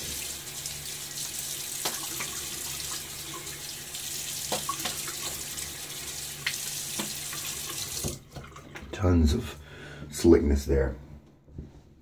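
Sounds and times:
sink tap running: 0.0 - 8.8
water splashes: 0.0 - 8.9.

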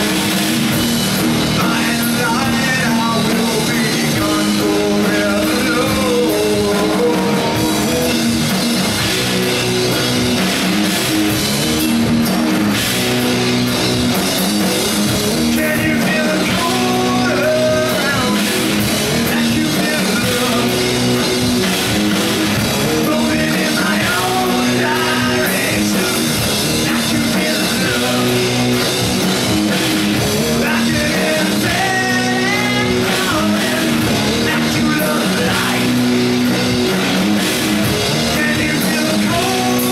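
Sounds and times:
drum kit: 0.0 - 39.9
electric guitars: 0.0 - 39.9
sung vocals: 1.2 - 8.6, 15.2 - 29.0, 30.2 - 36.6, 37.8 - 39.9.

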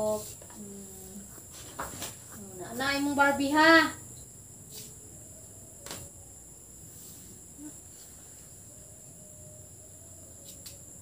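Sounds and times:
faint soft rustles: 0.0 - 3.1
crickets chirring: 0.0 - 11.0.

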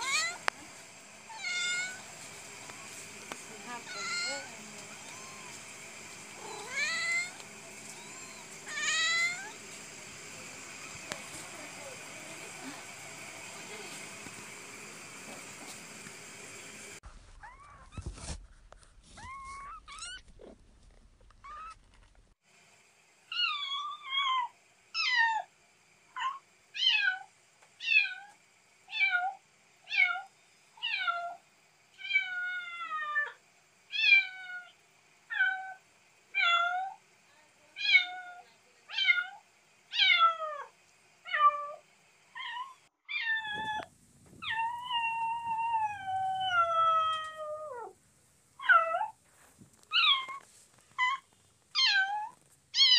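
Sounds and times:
kittens mewing: 0.0 - 0.5, 1.3 - 2.9, 3.5 - 14.2.

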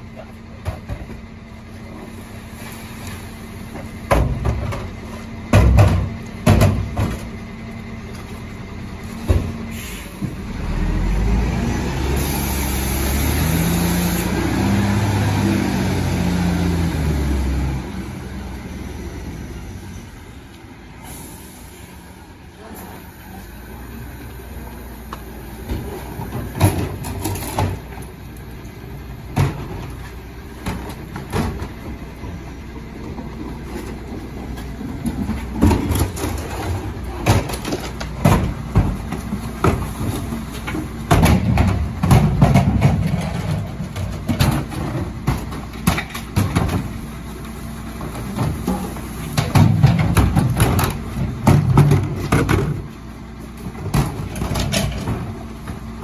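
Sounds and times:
bins banged against truck hopper: 3.7 - 7.4, 25.6 - 28.0, 29.2 - 30.0, 30.6 - 31.8, 34.9 - 47.3, 47.9 - 53.0, 53.6 - 56.0
diesel engine revving: 7.3 - 56.0.

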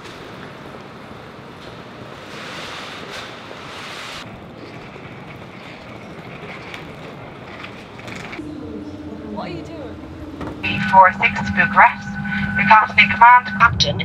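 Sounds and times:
traffic rushing: 8.3 - 14.0.

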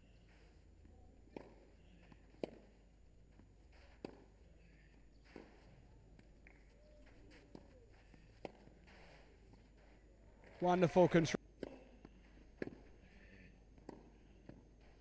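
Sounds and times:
tennis ball struck by racquets: 1.3 - 2.7, 3.8 - 4.3, 7.4 - 8.7, 11.6 - 12.9, 13.8 - 14.7.

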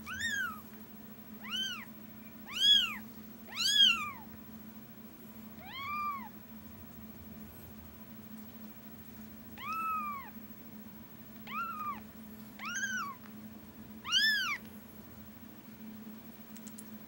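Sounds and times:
kitten mewing: 0.0 - 0.6, 5.6 - 6.3, 9.6 - 10.3, 11.5 - 12.0, 12.6 - 13.2, 14.0 - 14.6.

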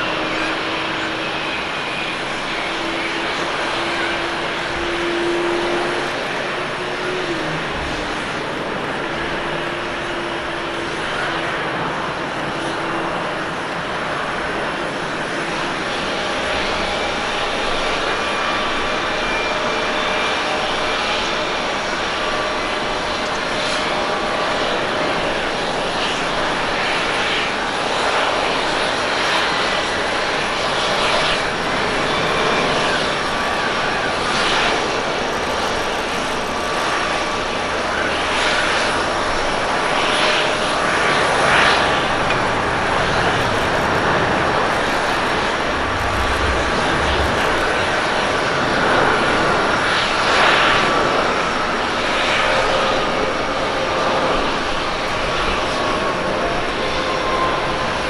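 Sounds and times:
jet airliner roar: 0.0 - 58.0
low rumble: 42.4 - 49.6.

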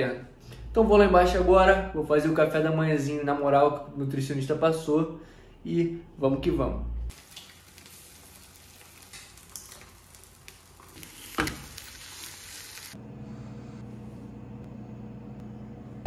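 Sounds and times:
eggs sizzling in a pan: 7.1 - 13.0
steady low hum: 13.0 - 16.0.

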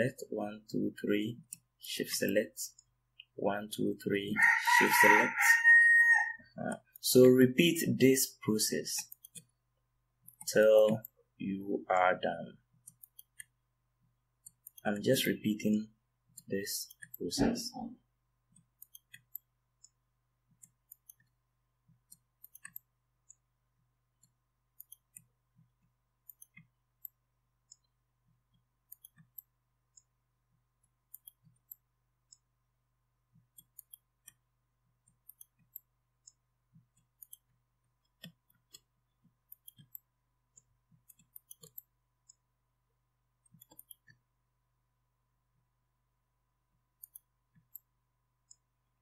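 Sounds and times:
mouse and keyboard clicks: 8.9 - 9.5, 12.8 - 13.6, 16.3 - 17.9, 18.5 - 20.0, 22.0 - 23.4, 24.2 - 25.3, 26.2 - 27.9, 28.9 - 30.1, 31.1 - 32.4, 33.4 - 34.4, 35.0 - 38.9, 39.5 - 42.4, 43.4 - 44.2, 47.0 - 47.9.

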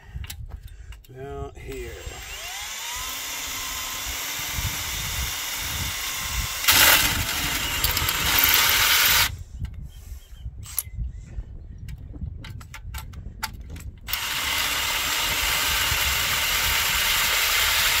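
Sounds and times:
drill grinding into steel: 1.7 - 9.3, 14.1 - 18.0.

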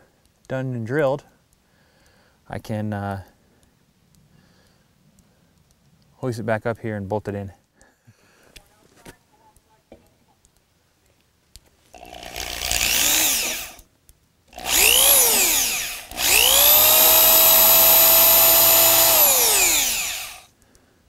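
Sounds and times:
cordless drill on steel: 12.0 - 13.8, 14.5 - 20.5.

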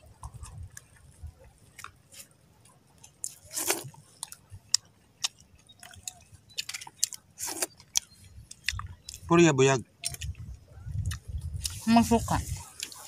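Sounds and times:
close-up chewing: 0.0 - 13.0
mouth clicks: 10.0 - 11.8.

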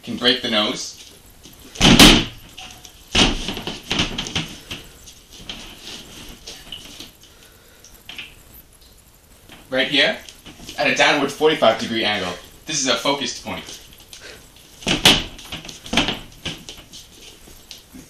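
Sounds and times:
rustling: 0.9 - 8.5, 9.3 - 18.0
hand strikes on training dummy: 14.8 - 16.7.

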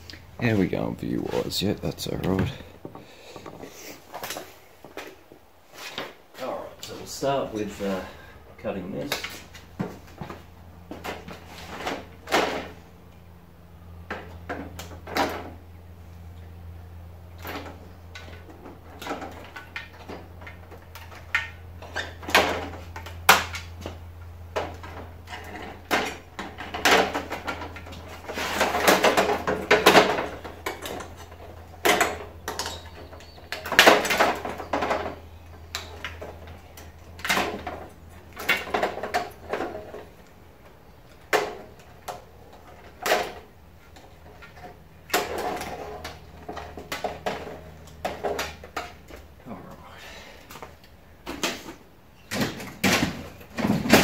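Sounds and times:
scraping and rustling: 24.7 - 40.2.

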